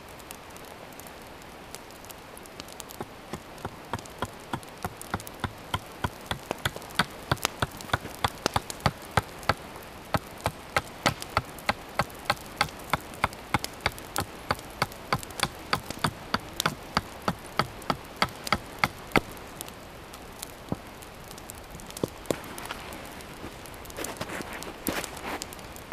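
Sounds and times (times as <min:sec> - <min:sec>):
blade clicking on wooden stave: 0:10.4 - 0:19.3.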